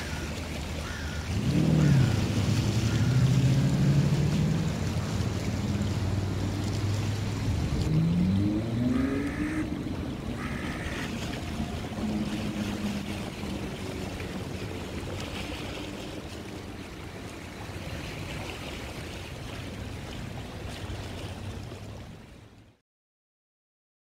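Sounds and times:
low motor hum: 0.0 - 18.0
choppy lake water: 0.0 - 22.8.

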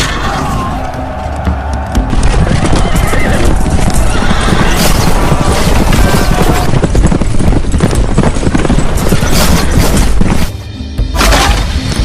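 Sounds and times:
hooves galloping: 0.8 - 10.6
horses neighing: 2.5 - 7.0.

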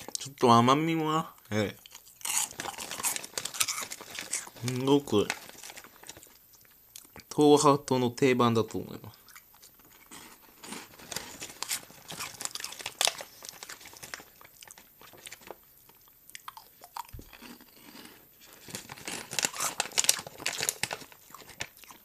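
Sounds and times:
crunchy snack chewing: 1.8 - 7.2, 9.2 - 22.0
foil snack bag rustling: 2.2 - 6.7, 9.7 - 16.0, 17.2 - 22.0.

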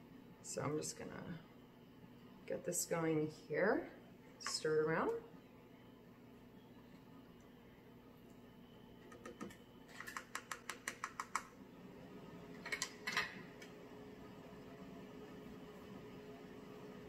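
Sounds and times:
faint steady hum: 0.0 - 17.0
spoon clicking against a pot: 9.2 - 11.5.

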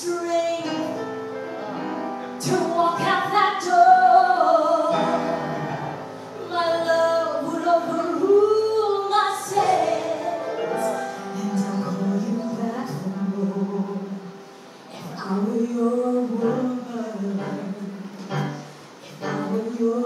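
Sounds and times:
woman singing into microphone: 0.0 - 1.0, 2.4 - 5.7, 6.4 - 20.0
musical accompaniment: 0.0 - 20.0.

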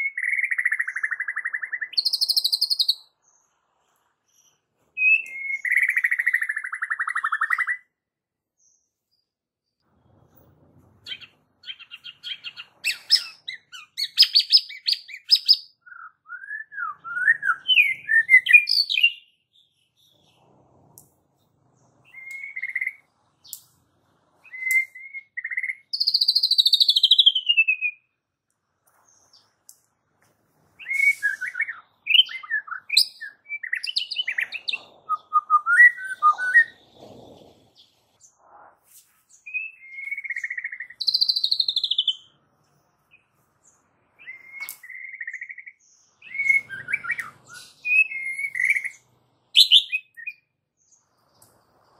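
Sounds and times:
bird whistles: 0.0 - 3.1, 5.0 - 7.8, 11.1 - 19.3, 22.0 - 23.1, 24.4 - 28.1, 30.8 - 37.0, 39.4 - 42.3, 44.2 - 49.0, 49.6 - 50.4.

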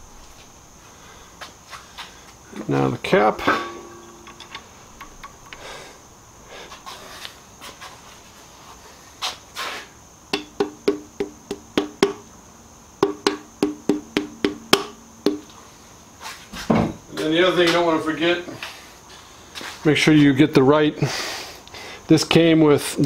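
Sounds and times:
rubber mallet tapping metal: 3.4 - 5.6, 10.3 - 12.2, 13.0 - 15.5.

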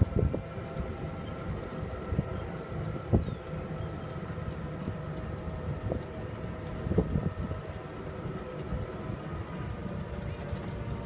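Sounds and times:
wind on microphone: 0.0 - 3.8, 4.8 - 9.2
cart running on paved road: 0.0 - 11.0
faint whining tones: 0.0 - 11.0.

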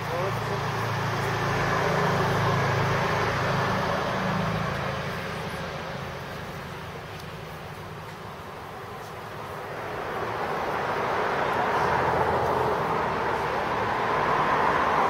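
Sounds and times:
vehicle engine passing: 0.0 - 7.1, 9.4 - 15.0.

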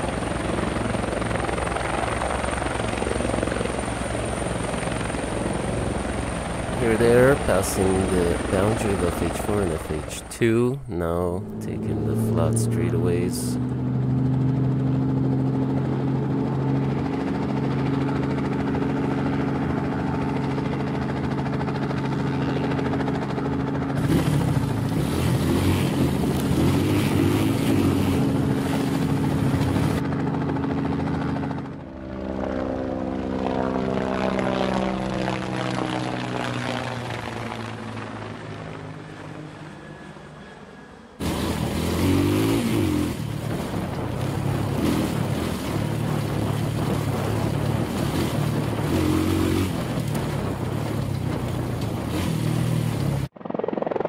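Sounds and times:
motorbike engines running: 5.6 - 31.8, 41.2 - 53.3.

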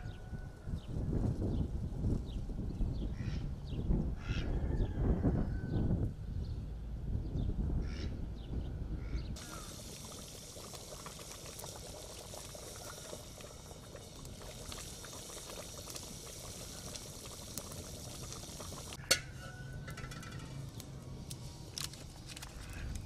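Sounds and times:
soup bubbling in pot: 9.4 - 21.9.

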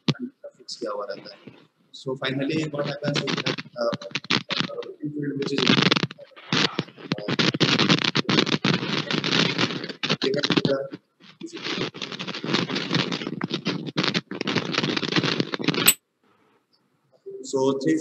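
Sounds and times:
scratching and rustling: 2.5 - 16.0.

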